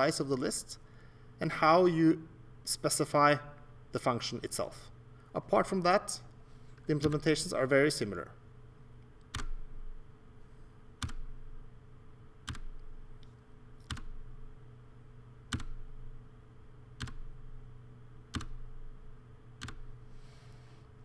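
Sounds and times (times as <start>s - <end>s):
steady low hum: 0.0s - 21.0s
computer keyboard key clicks: 13.8s - 14.1s, 15.5s - 15.8s, 18.3s - 18.6s, 19.6s - 19.9s.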